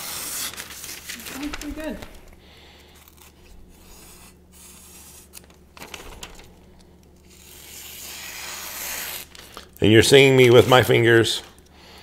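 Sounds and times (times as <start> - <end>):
knife slicing paper: 0.0 - 2.0, 2.8 - 6.4, 7.2 - 11.1.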